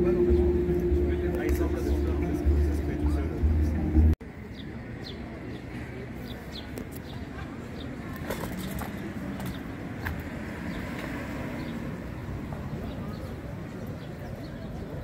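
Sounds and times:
cello tone: 0:00.0 - 0:04.2
traffic hum: 0:00.0 - 0:15.0.

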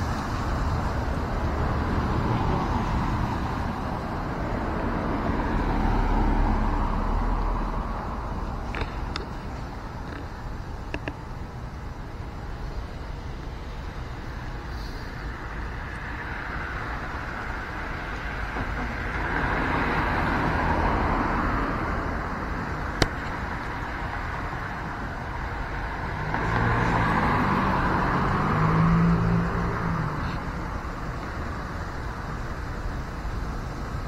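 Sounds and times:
vehicle passing: 0:00.0 - 0:08.4, 0:14.8 - 0:22.8, 0:23.6 - 0:31.3
steady traffic hum: 0:00.0 - 0:34.0.

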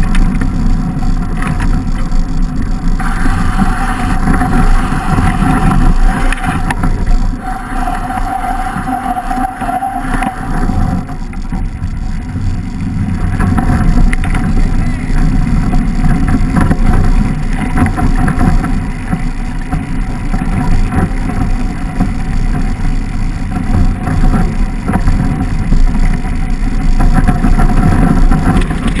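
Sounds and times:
bike rattling over bumps: 0:00.0 - 0:29.0
wind buffeting microphone: 0:00.0 - 0:29.0.

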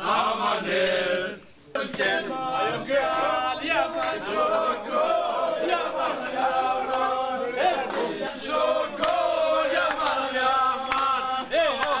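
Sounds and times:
men singing together: 0:00.0 - 0:12.0.

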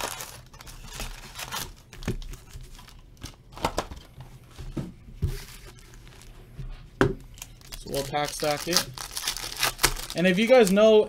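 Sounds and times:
foil packs rustling: 0:00.0 - 0:04.0, 0:07.3 - 0:11.0.

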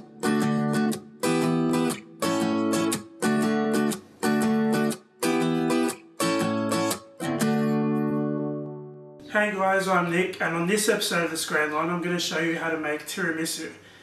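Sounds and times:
strummed acoustic guitar chords: 0:00.0 - 0:10.0.

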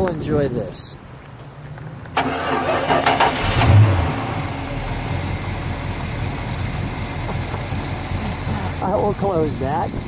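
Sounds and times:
car starter cranking: 0:02.2 - 0:04.8
engine revving and idling: 0:02.2 - 0:10.0.

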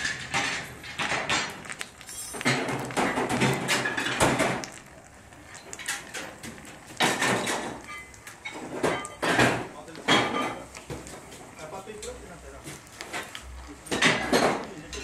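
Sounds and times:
foundry noise and clatter: 0:00.0 - 0:15.0.

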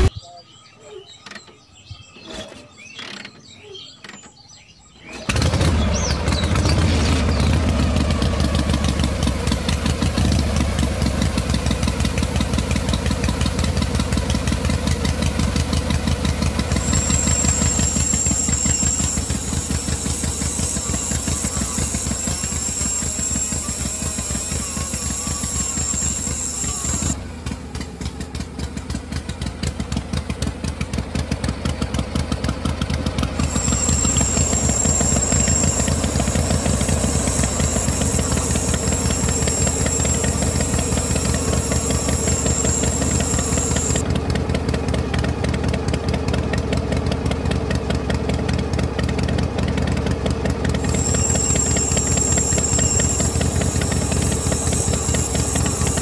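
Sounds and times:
machine chugging: 0:05.0 - 0:56.0
high steady whine: 0:05.9 - 0:29.0, 0:33.1 - 0:45.0, 0:49.6 - 0:56.0.

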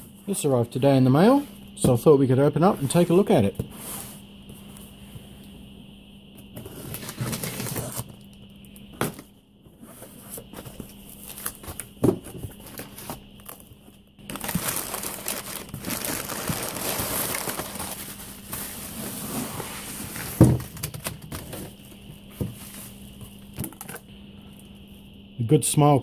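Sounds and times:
packing paper crinkling: 0:12.6 - 0:18.8.

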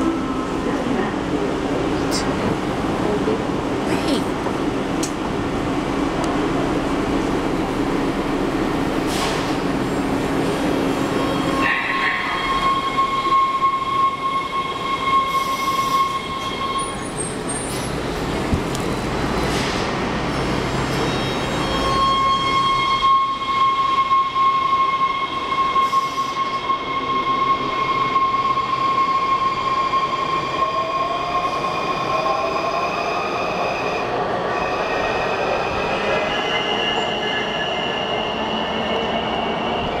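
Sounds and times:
train wheels on rails: 0:04.0 - 0:22.6.

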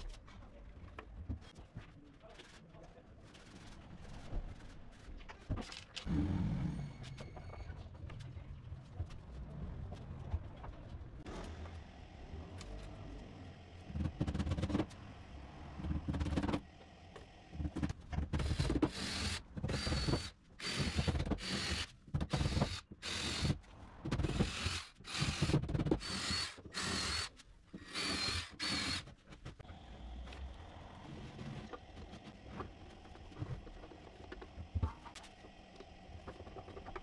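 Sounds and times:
cordless drill whining: 0:24.4 - 0:29.0.

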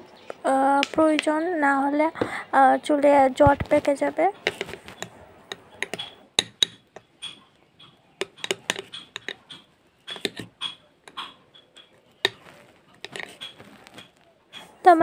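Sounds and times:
metal spoon scraping glass bowl: 0:04.4 - 0:14.2.

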